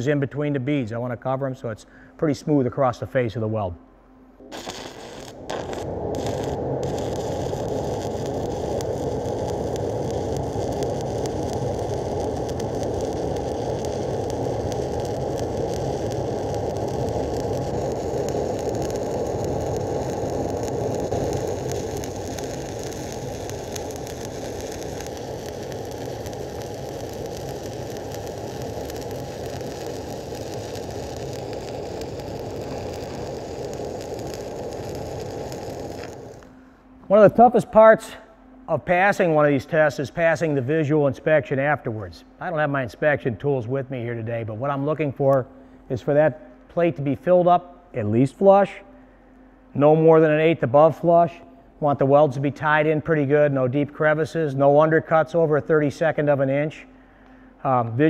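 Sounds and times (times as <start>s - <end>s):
welding arc burning: 4.4s - 36.6s.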